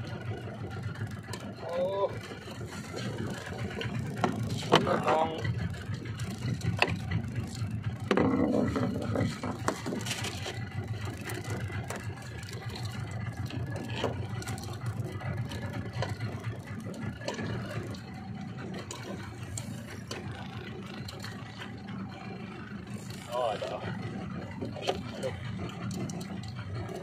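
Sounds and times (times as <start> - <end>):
outboard motor humming: 0.0 - 27.0
fishing tackle clicks and knocks: 2.9 - 5.2, 6.2 - 18.0.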